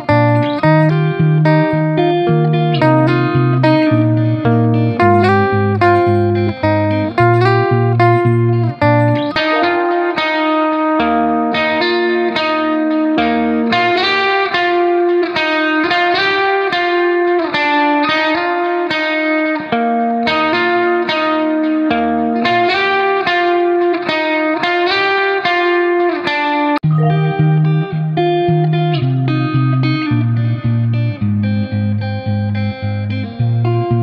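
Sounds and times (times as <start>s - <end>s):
deep bass line: 0.0s - 9.7s, 26.8s - 28.4s
plucked guitar melody: 0.0s - 34.0s.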